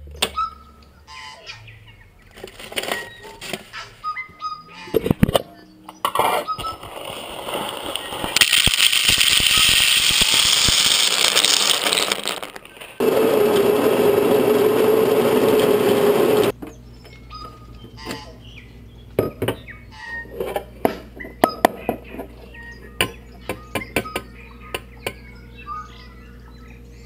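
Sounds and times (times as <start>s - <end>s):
electric coffee grinder running: 8.4s - 16.5s
loud steady hissing rush: 13.0s - 16.5s.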